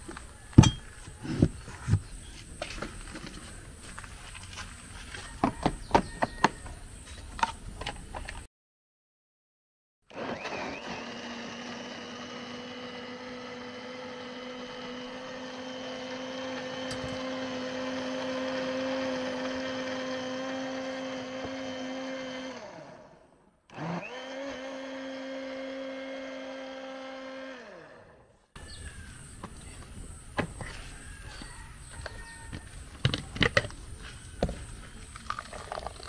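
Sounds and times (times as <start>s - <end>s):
electric blender motor whine: 10.1s - 28.5s.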